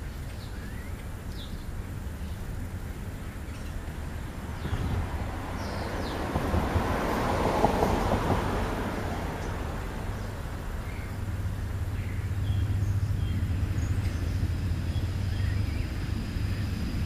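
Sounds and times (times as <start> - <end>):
low traffic rumble: 0.0 - 17.0
vehicle passing: 3.7 - 17.0.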